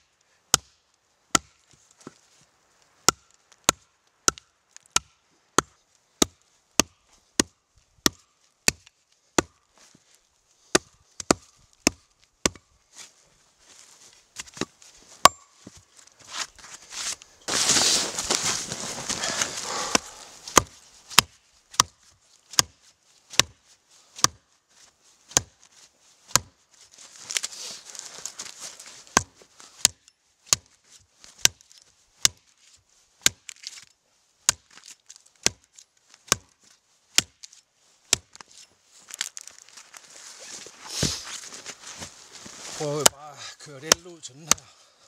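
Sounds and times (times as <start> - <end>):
wood rustling and cracking: 38.2 - 43.0.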